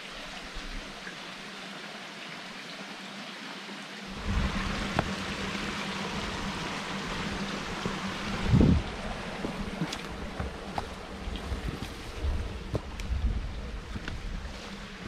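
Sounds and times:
wind gusts buffeting microphone: 0:04.2 - 0:06.6, 0:07.2 - 0:15.0
wind rushing: 0:08.3 - 0:09.0.

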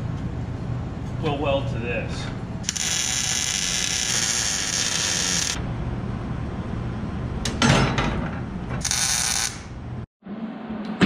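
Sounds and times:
welder arc crackling: 0:02.6 - 0:05.6, 0:08.8 - 0:09.7
metal clank: 0:07.5 - 0:08.5.

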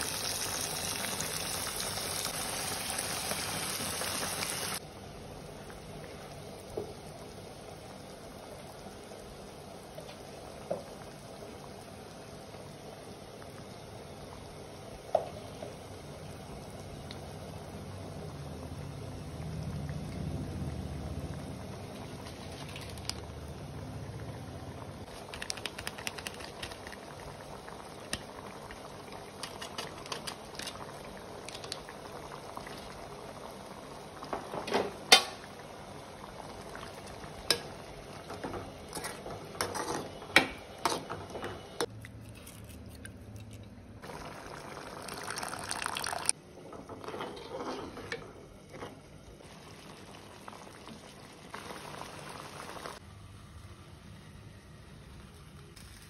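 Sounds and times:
stew simmering and bubbling: 0:00.0 - 0:56.0.

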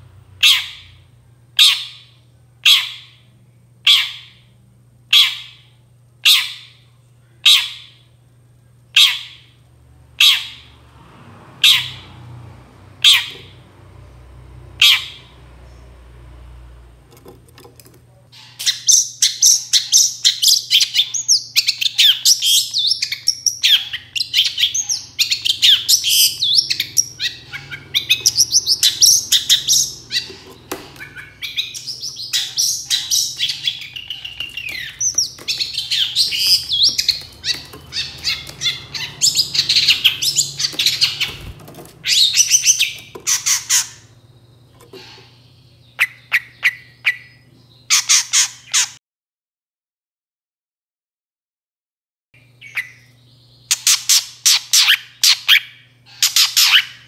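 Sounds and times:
shrike singing chirps and whistles: 0:31.0 - 0:44.6.

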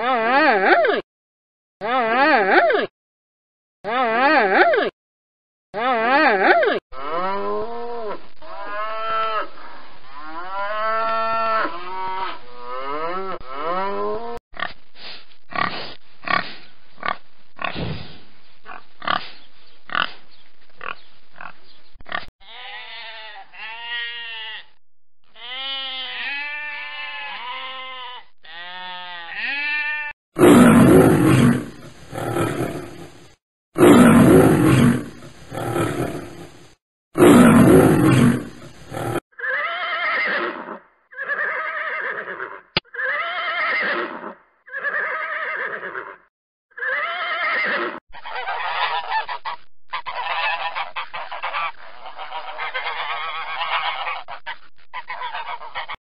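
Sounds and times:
sheep bleating: 0:22.4 - 0:30.2
loud animal calls: 0:37.2 - 0:56.0.

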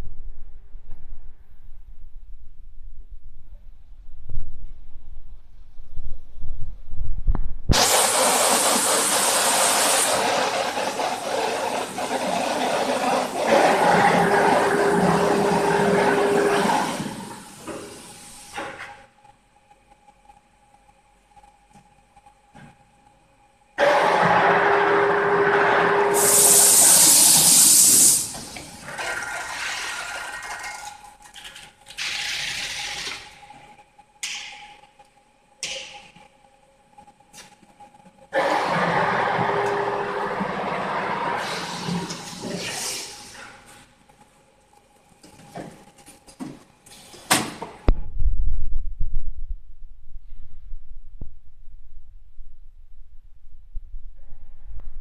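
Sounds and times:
low rumble: 0:00.0 - 0:07.8, 0:47.9 - 0:55.0
tape machine rushing hiss: 0:07.7 - 0:15.0, 0:25.9 - 0:29.2
tape slitting machine hissing: 0:07.7 - 0:19.0, 0:23.8 - 0:30.8, 0:38.3 - 0:43.8.

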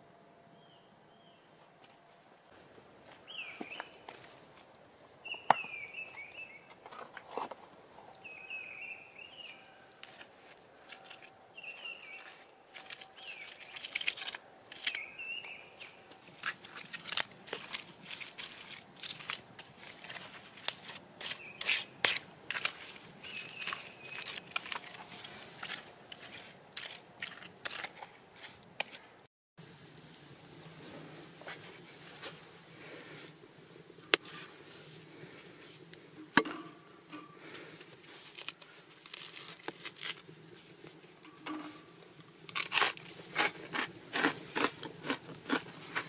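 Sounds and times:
crunching and scraping clay: 0:09.5 - 0:29.0.

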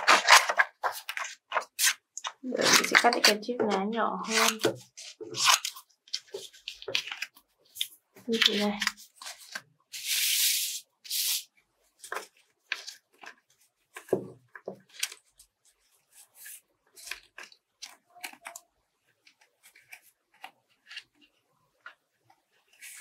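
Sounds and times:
scissors cutting paper: 0:00.0 - 0:10.2
paper rustling: 0:00.0 - 0:23.0.

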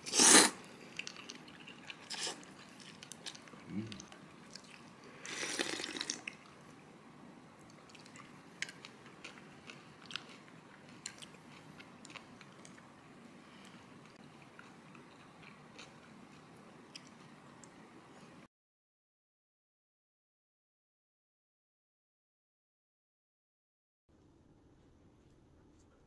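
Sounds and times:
person slurping noodles: 0:00.0 - 0:00.6, 0:02.0 - 0:02.5, 0:05.2 - 0:06.2
chewing and crunching: 0:00.8 - 0:06.6, 0:07.6 - 0:17.8.

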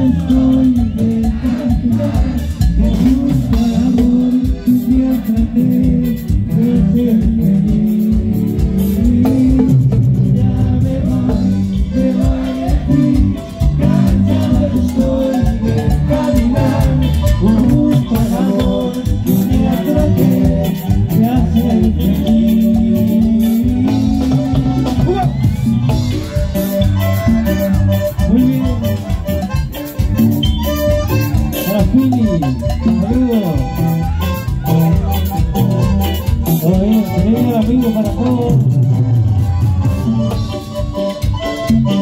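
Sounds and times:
person singing: 0:00.0 - 0:29.5
accordion: 0:00.0 - 0:42.0
congas: 0:00.0 - 0:42.0
live latin dance band: 0:00.0 - 0:42.0.

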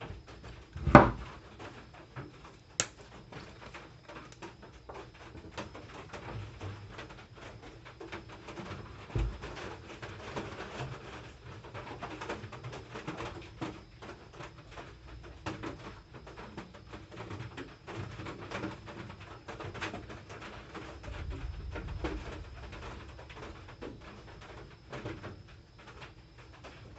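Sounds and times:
low thump: 0:00.8 - 0:01.2.

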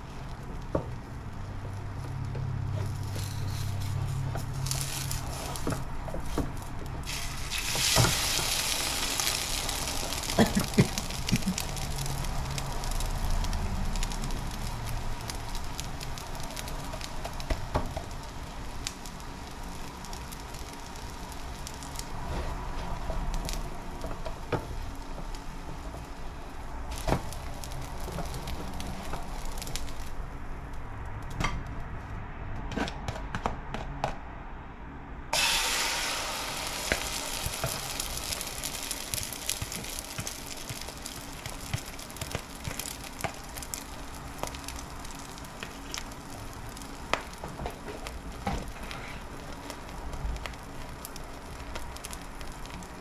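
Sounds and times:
frying sizzle in a skillet: 0:00.0 - 0:30.3, 0:35.3 - 0:53.0
egg hissing in hot pan: 0:07.0 - 0:30.1, 0:35.4 - 0:47.4.

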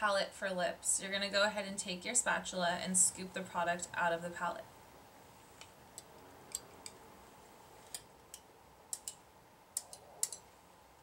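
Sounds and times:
spatula ticking on metal palette: 0:07.9 - 0:09.2.

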